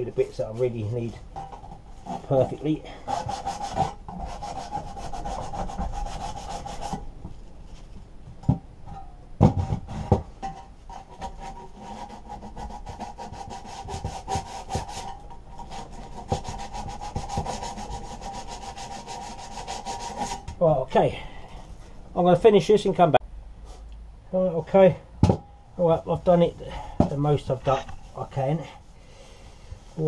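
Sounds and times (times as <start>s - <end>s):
sandpaper rubbing on sheet metal: 3.1s - 7.0s, 11.2s - 20.4s
knocks: 8.4s - 10.6s, 25.2s - 25.5s.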